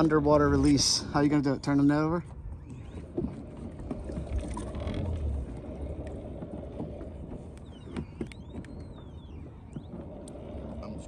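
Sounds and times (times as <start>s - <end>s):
low rumble: 3.0s - 7.9s.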